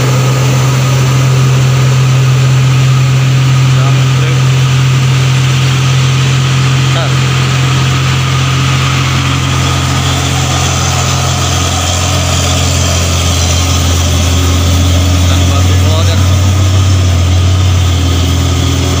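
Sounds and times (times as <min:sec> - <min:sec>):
diesel truck engines droning: 0:00.0 - 0:19.0.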